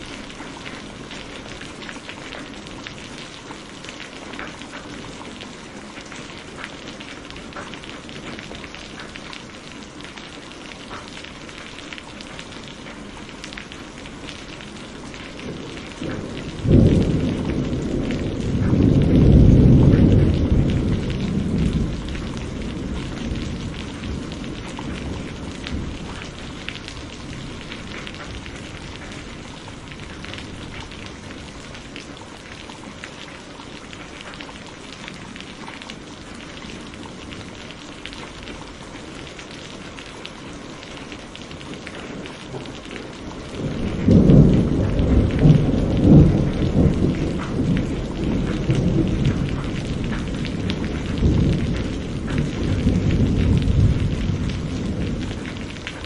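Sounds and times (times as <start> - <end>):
heavy rain falling: 0.0 - 56.0
thunderclap rumbling: 14.4 - 32.2, 41.6 - 56.0.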